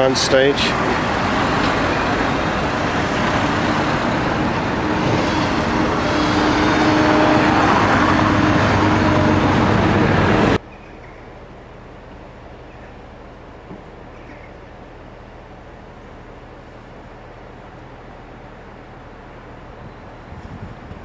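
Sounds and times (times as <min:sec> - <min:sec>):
cars passing by: 0:00.0 - 0:21.0
quiet outdoor background: 0:10.6 - 0:21.0.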